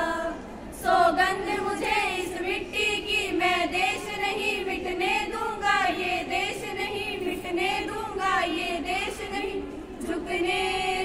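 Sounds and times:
young women singing together: 0:00.0 - 0:11.0.

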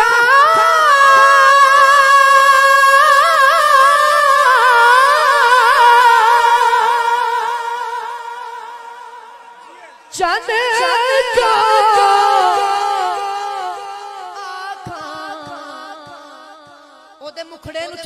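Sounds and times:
man singing unaccompanied: 0:10.1 - 0:18.0.

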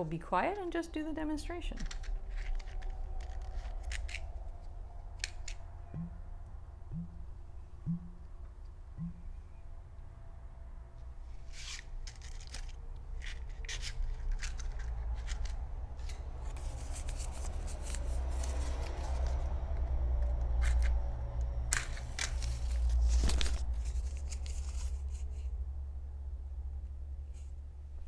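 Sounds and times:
paper rustling and crinkling: 0:01.8 - 0:04.6, 0:11.5 - 0:19.6, 0:21.7 - 0:25.5.

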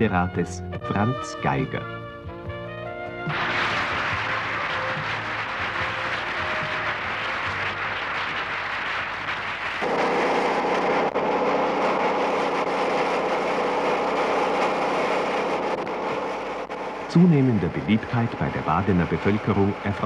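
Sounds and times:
applause: 0:03.2 - 0:10.6
crowd noise: 0:03.3 - 0:09.5.

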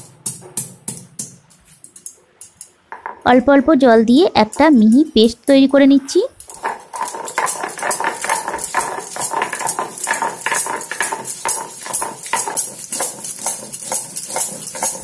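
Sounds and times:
stone pestle grinding on stone slab: 0:06.4 - 0:15.0.

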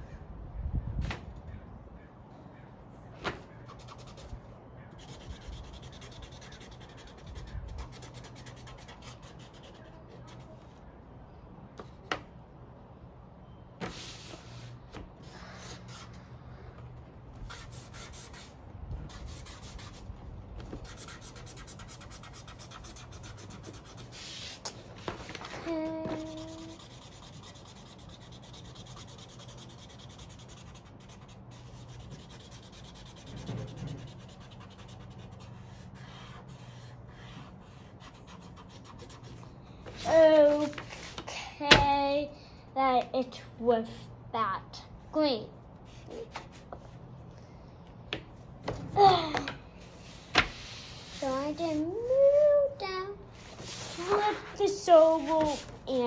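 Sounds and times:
marker scribbling on paper: 0:03.5 - 0:10.8, 0:13.8 - 0:16.2, 0:17.4 - 0:25.2, 0:26.0 - 0:41.2, 0:53.4 - 0:56.0.

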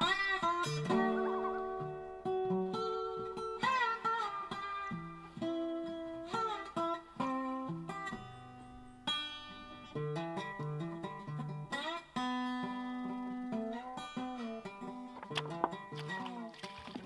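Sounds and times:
acoustic guitar melody: 0:00.0 - 0:17.0.

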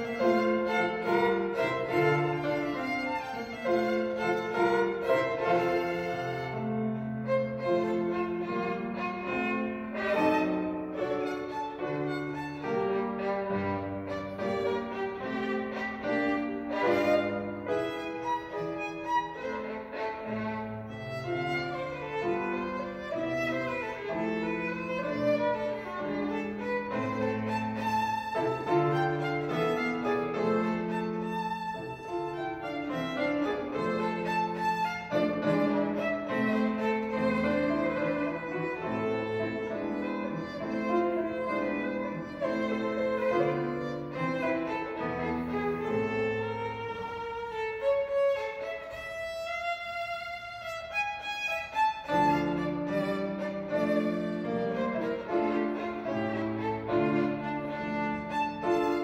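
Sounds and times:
grand piano accompaniment: 0:00.0 - 0:59.0
violin melody: 0:00.0 - 0:59.0.

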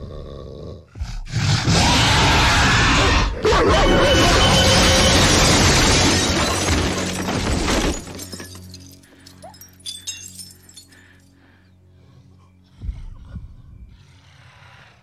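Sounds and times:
crashing and shattering: 0:03.9 - 0:11.0
low musical drone: 0:08.3 - 0:15.0.

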